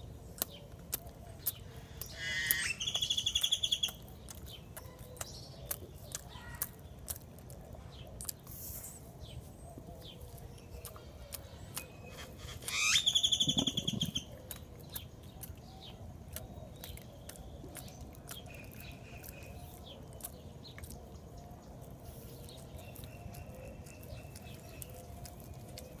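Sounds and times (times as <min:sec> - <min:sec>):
monkeys chewing and lip-smacking: 0:00.0 - 0:26.0
faint high bird whistles: 0:12.1 - 0:14.3
loud whistled bird trill: 0:12.1 - 0:14.3.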